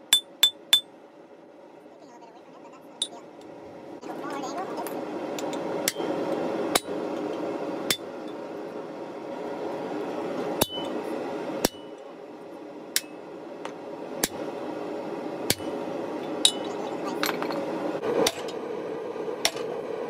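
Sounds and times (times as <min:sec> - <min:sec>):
hammer striking metal on anvil: 0:00.0 - 0:00.9, 0:05.8 - 0:06.1, 0:06.7 - 0:07.0, 0:10.6 - 0:10.9, 0:11.6 - 0:11.9, 0:15.5 - 0:15.7, 0:18.2 - 0:18.6
steady low hum: 0:00.0 - 0:20.0.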